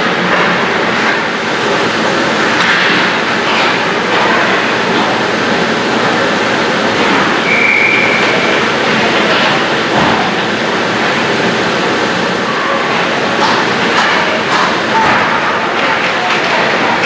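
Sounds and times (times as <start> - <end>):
ice rink rushing noise: 0.0 - 17.0
referee's whistle: 7.4 - 8.6.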